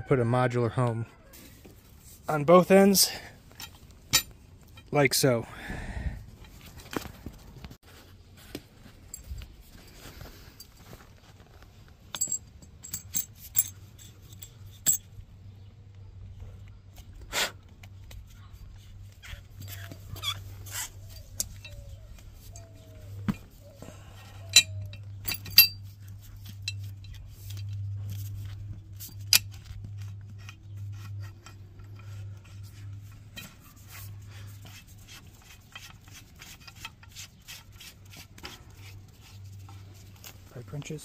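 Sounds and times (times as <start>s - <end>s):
metal clinks and taps: 12.1s - 15.1s, 24.4s - 27.9s.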